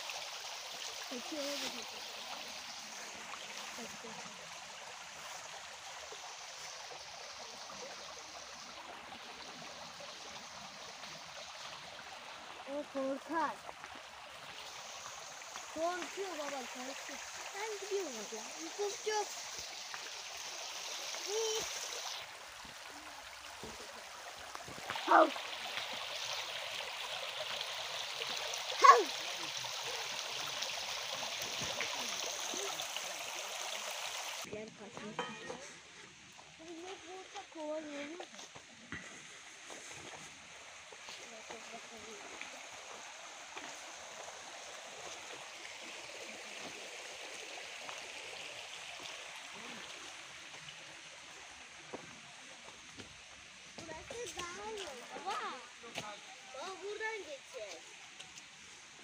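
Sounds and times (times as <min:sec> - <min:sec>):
stream running over stones: 0:00.0 - 0:59.0
loud shouts: 0:28.8 - 0:29.2.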